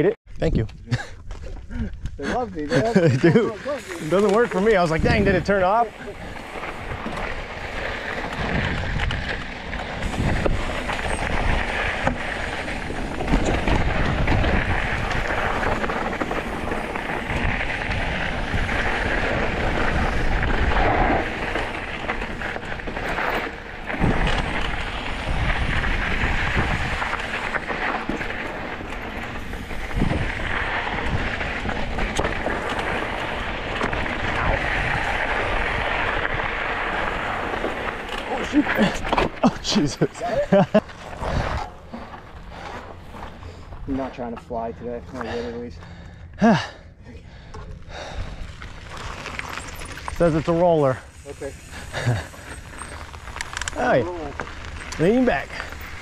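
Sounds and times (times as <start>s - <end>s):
bike tyres crunching on dirt: 0.6s - 56.0s
wind buffeting microphone: 4.4s - 44.1s.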